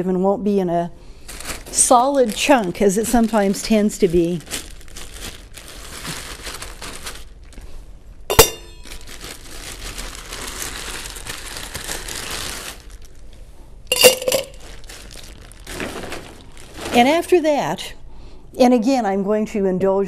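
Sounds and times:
ice rustling and crinkling: 1.2 - 7.7, 8.4 - 17.6
ice cubes clinking into shaker: 13.9 - 14.9.

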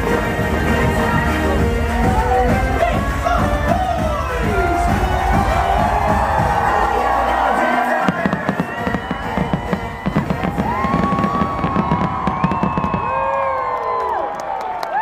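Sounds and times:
music with heavy bass: 0.0 - 11.3
crowd cheering and whooping: 0.3 - 15.0
fireworks bursting and crackling: 1.9 - 7.2, 8.0 - 14.0.

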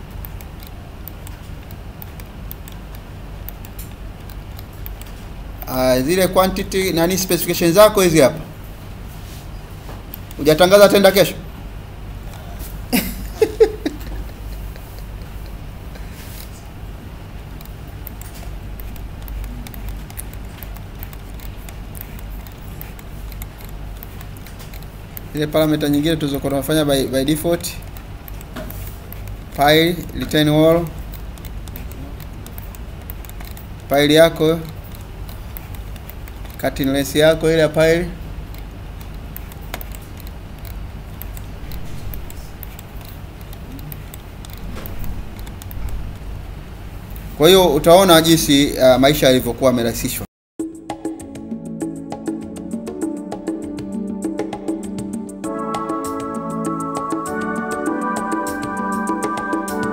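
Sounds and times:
computer mouse clicks: 0.0 - 5.8, 10.1 - 10.5, 17.5 - 37.9, 38.5 - 46.3
steady low hum: 0.0 - 49.1.

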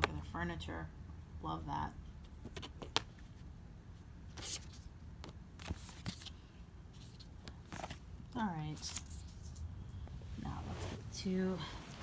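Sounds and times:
cards and paper rustling: 2.3 - 3.4, 4.3 - 9.7.

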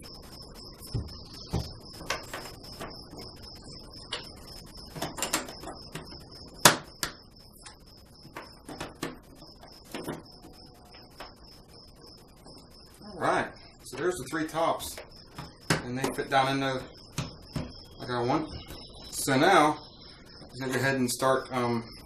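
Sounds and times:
faint high whine: 0.0 - 22.0
wooden bobbins clicking on plastic: 4.9 - 6.0.

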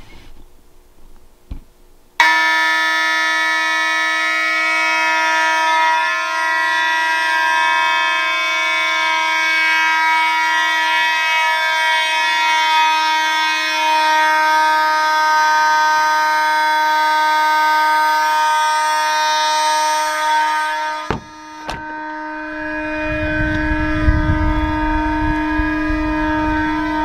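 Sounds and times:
buzzy fire alarm horn: 2.2 - 27.0
wind rumble on microphone: 22.6 - 27.0.

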